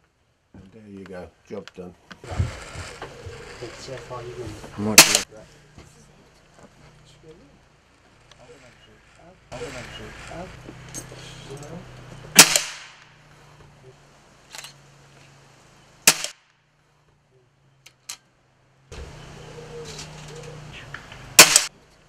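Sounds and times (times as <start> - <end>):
air rifle cracks: 12.4 - 13.1, 16.1 - 16.5, 21.4 - 21.7.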